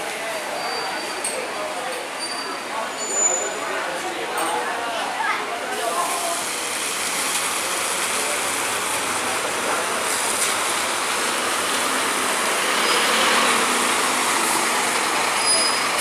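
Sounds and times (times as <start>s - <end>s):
tyre hiss on wet road: 5.7s - 16.0s
bus engine passing: 6.1s - 16.0s.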